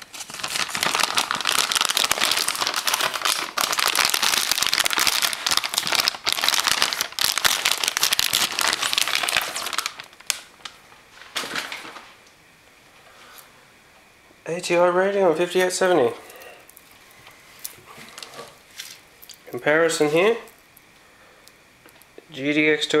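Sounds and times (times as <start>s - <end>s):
plastic wrapping crinkling: 0.0s - 12.2s, 16.7s - 20.8s.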